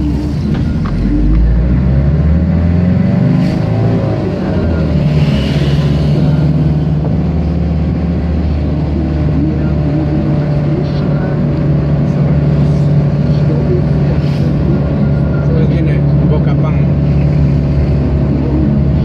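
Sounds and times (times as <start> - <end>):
car engine and road hum: 0.0 - 19.0.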